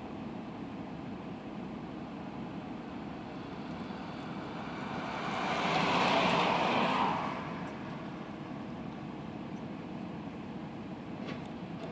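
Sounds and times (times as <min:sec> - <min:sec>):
tyre and road noise: 0:01.8 - 0:11.9
truck driving past: 0:02.4 - 0:09.4.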